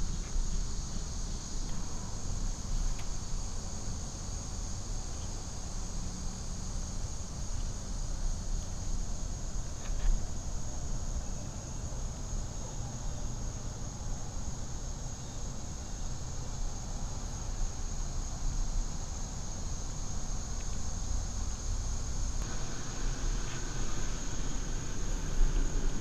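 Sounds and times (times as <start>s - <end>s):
shrill insect chorus: 0.0s - 26.0s
low rumble: 22.4s - 26.0s.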